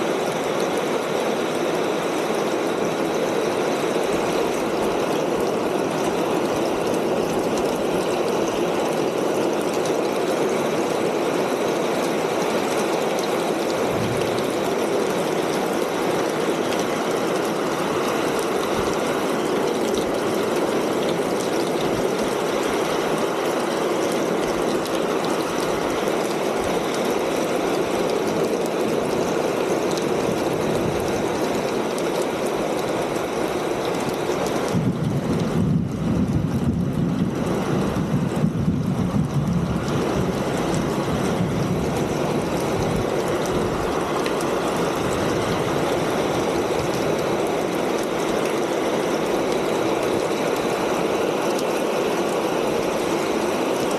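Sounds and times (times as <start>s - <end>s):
rain on a tin roof: 0.0s - 53.9s.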